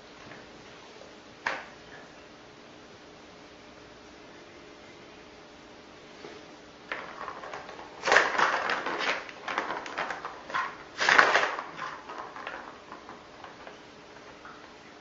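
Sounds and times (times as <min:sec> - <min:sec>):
cat crashing into household things: 0:06.9 - 0:13.6.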